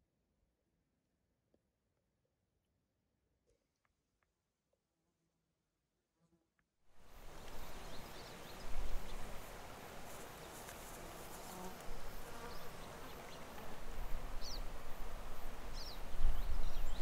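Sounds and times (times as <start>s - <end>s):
insects buzzing: 7.0s - 17.0s
low rumbling wind gusts: 13.9s - 17.0s.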